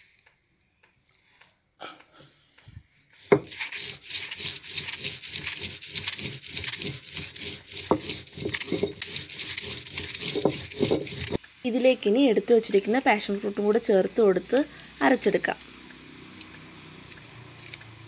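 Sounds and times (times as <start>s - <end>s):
stone on stone grinding: 3.2s - 11.4s.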